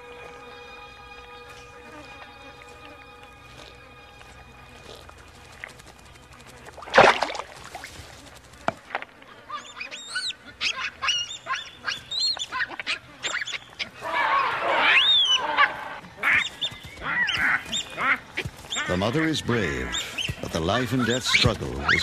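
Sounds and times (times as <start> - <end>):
baboons screaming: 9.4 - 22.0.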